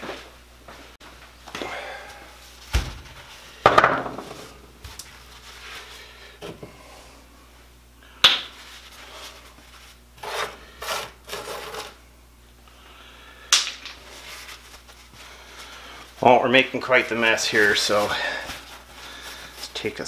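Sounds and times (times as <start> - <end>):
grit scraping on hard countertop: 10.2 - 12.0.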